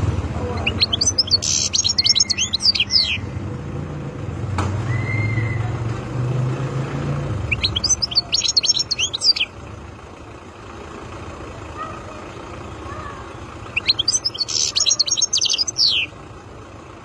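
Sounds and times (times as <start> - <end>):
low engine rumble: 0.0 - 17.0
goldfinch twittering song: 0.5 - 3.4, 7.4 - 9.6, 12.7 - 16.2.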